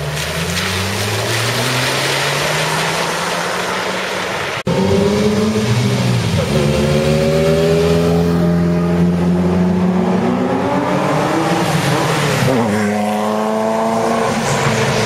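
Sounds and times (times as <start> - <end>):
sports car engine accelerating: 4.7 - 15.0.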